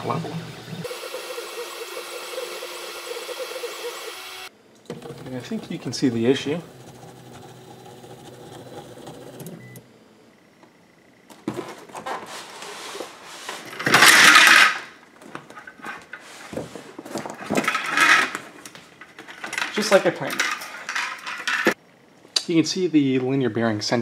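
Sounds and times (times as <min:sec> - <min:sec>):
stepper motors whirring: 0:00.4 - 0:09.8
rustling and knocking of parts: 0:11.3 - 0:21.8.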